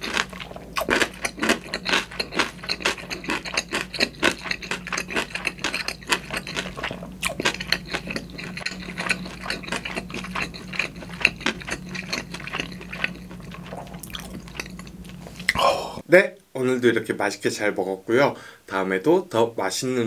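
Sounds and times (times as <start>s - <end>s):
wet chewing: 0.0s - 15.6s.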